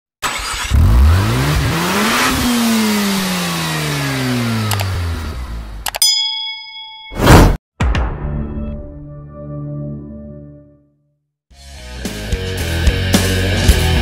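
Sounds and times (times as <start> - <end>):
car engine revving: 0.2 - 5.8
mouse clicks: 4.7 - 4.9
notification bell ding: 5.9 - 7.5.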